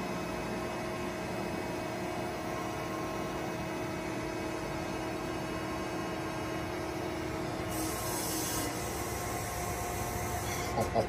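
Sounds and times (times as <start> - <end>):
hydraulic machine humming: 2.2 - 11.0.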